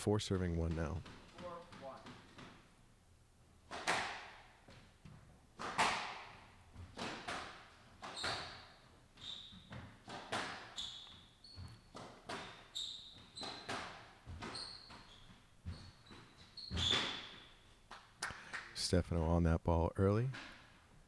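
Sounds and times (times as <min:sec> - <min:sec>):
shoes squeaking on wooden floor: 0:00.3 - 0:02.6, 0:06.7 - 0:17.9
ball smacking off court walls: 0:00.6 - 0:02.6, 0:03.7 - 0:08.7, 0:09.5 - 0:18.1
squash ball hit by rackets: 0:03.7 - 0:08.6, 0:09.7 - 0:10.8, 0:11.9 - 0:12.7, 0:13.4 - 0:15.8.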